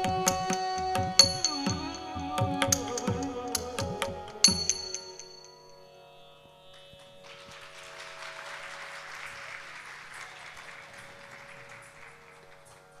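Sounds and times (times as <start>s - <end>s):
faint steady drone: 0.0s - 7.7s
audience applauding: 6.7s - 13.0s.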